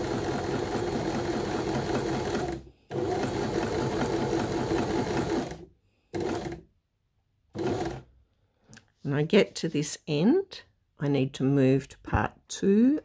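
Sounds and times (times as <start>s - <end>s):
sewing machine running: 0.0s - 6.7s, 7.5s - 8.1s.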